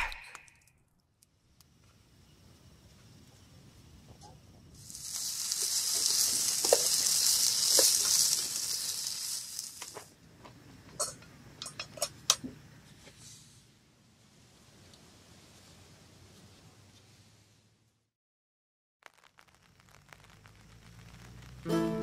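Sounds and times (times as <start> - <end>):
chicken and onion sizzling in pan: 4.8 - 10.1, 19.0 - 22.0.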